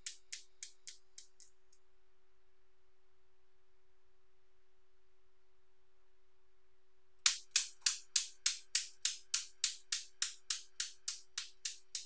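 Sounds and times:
newton's cradle balls clicking: 0:00.0 - 0:01.8, 0:07.3 - 0:12.0.

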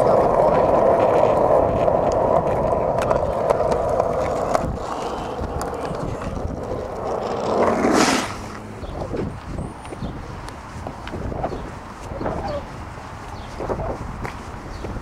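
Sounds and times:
skateboard wheels rolling on asphalt: 0:00.0 - 0:15.0.

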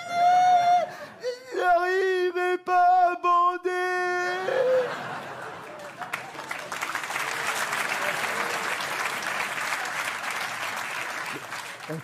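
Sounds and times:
man singing: 0:00.0 - 0:04.7
audience applauding: 0:04.9 - 0:12.0.

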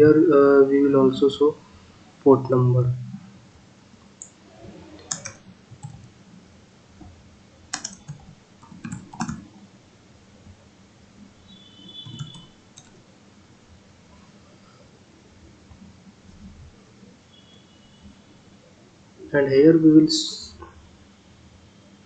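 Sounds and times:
computer keyboard keystrokes: 0:05.1 - 0:06.1, 0:07.7 - 0:09.5, 0:12.0 - 0:13.0.

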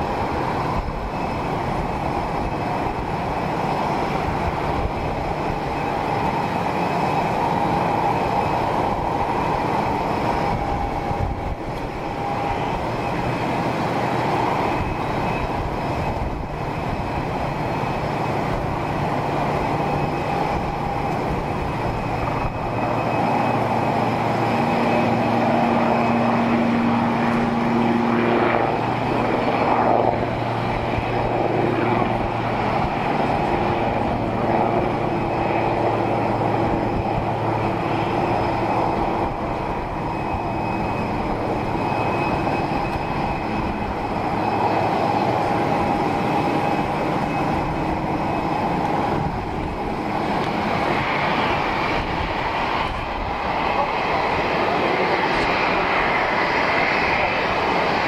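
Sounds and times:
airplane engines rumbling: 0:00.0 - 0:58.0
thin whining tone: 0:00.0 - 0:58.0.

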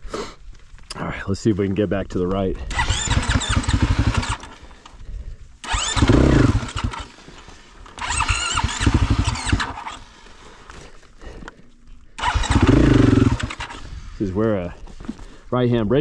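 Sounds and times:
dirt bike engine idling: 0:02.6 - 0:15.4
dirt bike engine revving: 0:02.7 - 0:04.6, 0:05.6 - 0:10.2, 0:12.2 - 0:14.3.

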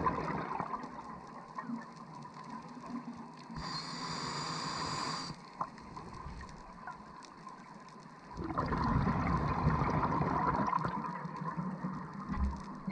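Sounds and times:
underwater breath bubbles gurgling: 0:00.0 - 0:01.1, 0:03.5 - 0:06.9, 0:08.3 - 0:12.9.

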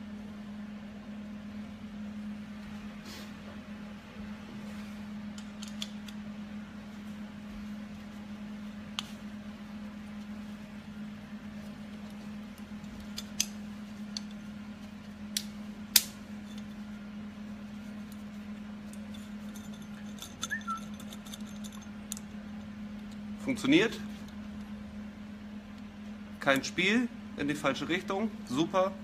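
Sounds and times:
steady low hum: 0:00.0 - 0:29.0
metal parts clicking: 0:19.1 - 0:22.2
brief squeak: 0:20.5 - 0:20.9.

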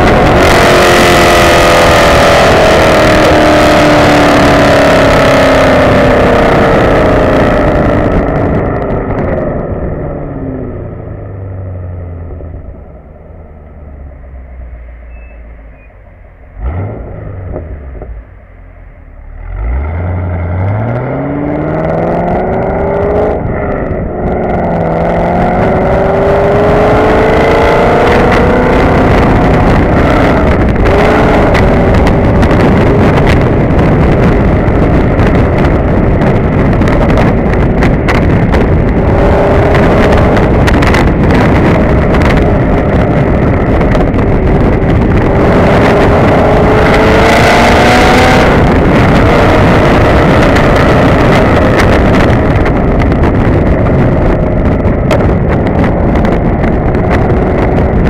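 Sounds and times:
car engine accelerating: 0:00.0 - 0:58.0
wind buffeting microphone: 0:00.0 - 0:58.0.

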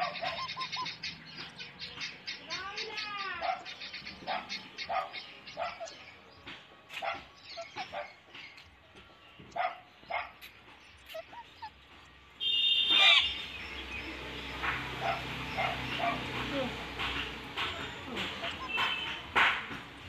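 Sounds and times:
parakeets squawking and chirping: 0:00.0 - 0:08.6, 0:09.3 - 0:20.0
harsh parakeet screech: 0:12.9 - 0:13.4.

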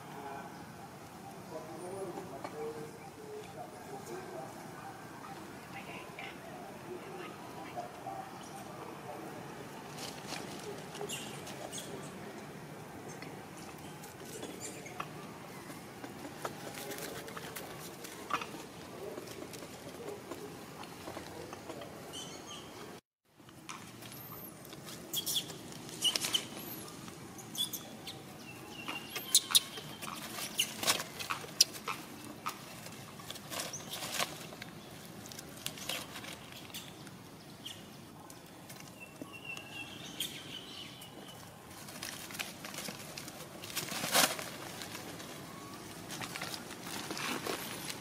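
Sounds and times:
leaves and branches rustling: 0:00.6 - 0:22.3, 0:23.4 - 0:48.0.

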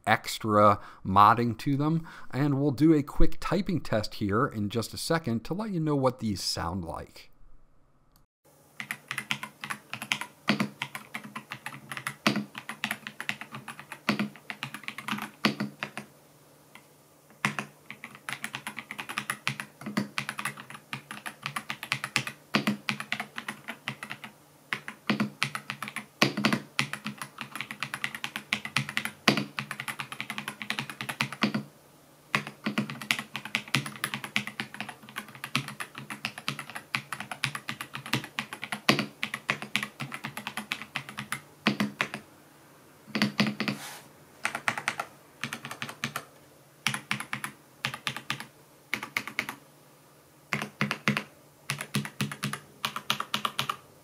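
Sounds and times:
mechanical keyboard typing: 0:08.8 - 0:16.1, 0:17.3 - 0:31.7, 0:32.3 - 0:42.2, 0:43.1 - 0:43.8, 0:44.4 - 0:49.6, 0:50.5 - 0:53.8.

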